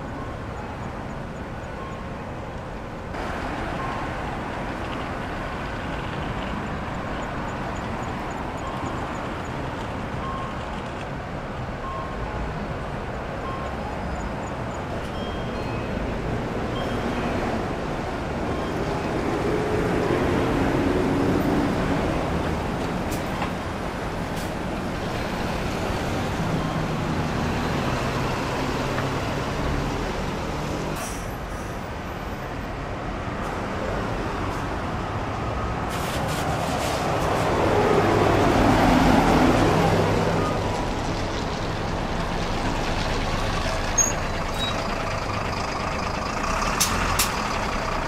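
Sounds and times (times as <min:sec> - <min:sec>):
bus engines running: 0:00.0 - 0:48.0
bus passing by: 0:00.0 - 0:48.0
street traffic: 0:00.0 - 0:48.0.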